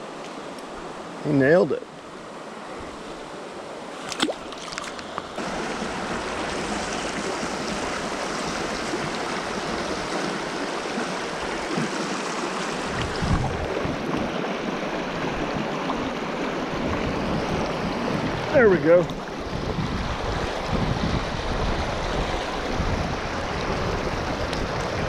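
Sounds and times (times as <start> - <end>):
stream running over rocks: 0.0 - 25.0.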